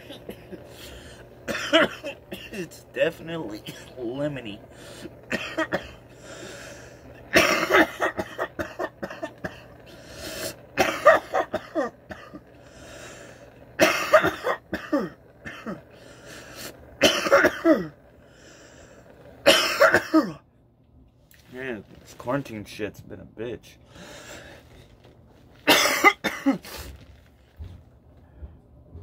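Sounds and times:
man coughing hard: 0.0s - 2.8s, 3.5s - 4.0s, 5.0s - 6.0s, 7.2s - 9.8s, 10.6s - 12.5s, 13.8s - 15.9s, 17.0s - 18.0s, 19.5s - 20.4s, 25.7s - 26.7s.

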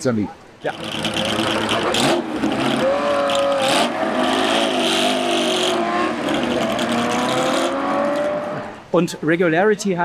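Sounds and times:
race car engine running nearby: 0.6s - 8.9s
race car engine accelerating hard: 0.7s - 8.8s.

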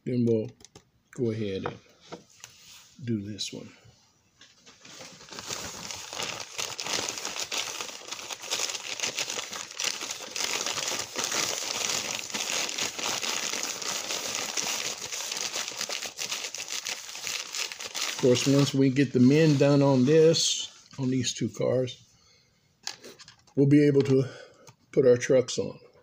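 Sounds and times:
crinkling and crumpling: 4.4s - 21.2s.

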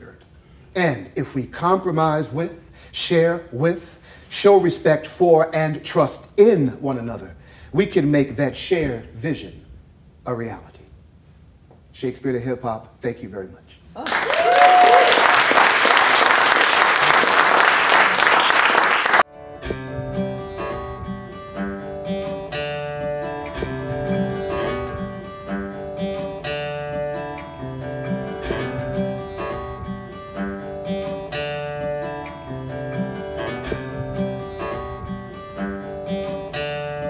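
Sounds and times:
audience applauding: 14.0s - 19.2s
acoustic guitar plucked notes: 19.3s - 37.0s.

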